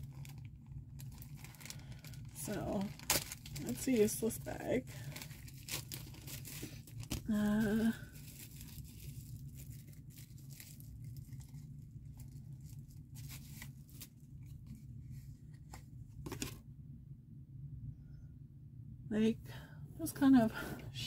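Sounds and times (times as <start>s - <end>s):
plastic bag crinkling and tearing: 0.0s - 14.8s.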